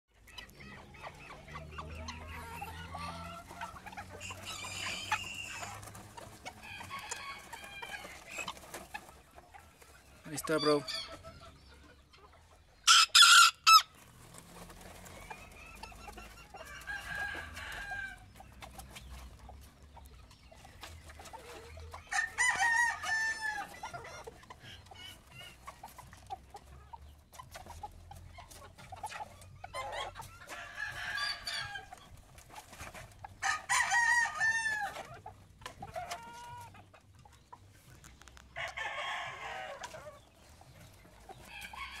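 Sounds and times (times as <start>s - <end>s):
chickens clucking: 0.1s - 42.0s
rooster crowing: 6.6s - 8.2s, 41.5s - 42.0s.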